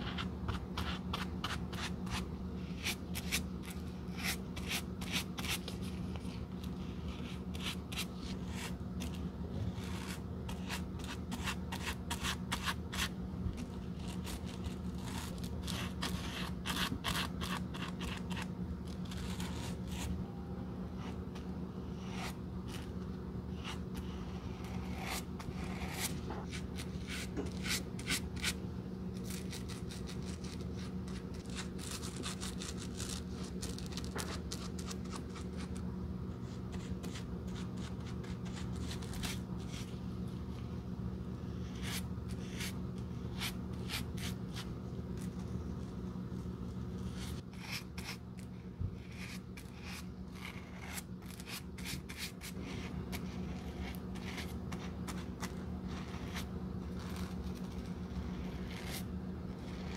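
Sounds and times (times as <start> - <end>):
steady low hum: 0.0 - 59.9
brush scratching on cork: 49.1 - 59.9.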